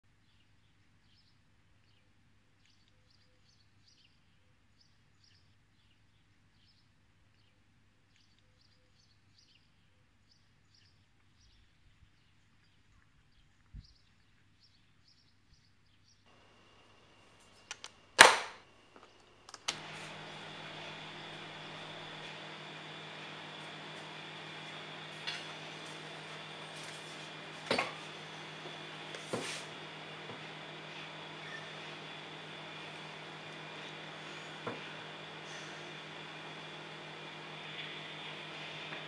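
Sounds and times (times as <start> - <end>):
amplifier hum and hiss: 16.3 - 39.0
clicks: 17.5 - 20.8
loud pop: 18.2 - 18.6.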